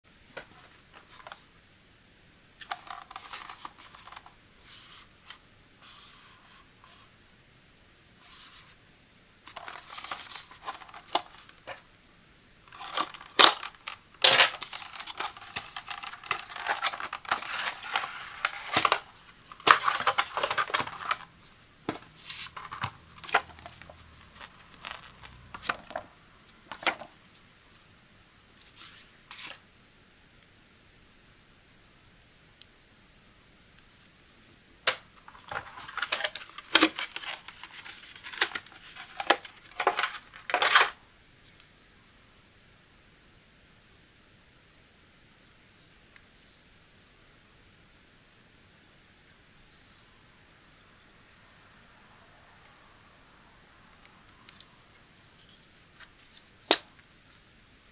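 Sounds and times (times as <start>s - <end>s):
handling cable and paper: 0.3s - 1.5s, 2.6s - 7.1s, 9.4s - 12.0s, 12.7s - 27.9s, 28.6s - 29.7s, 34.8s - 41.7s, 53.9s - 57.9s
cardboard sliding and rustling: 9.5s - 11.8s, 12.7s - 21.3s, 21.9s - 26.1s
cardboard tearing: 12.7s - 21.3s.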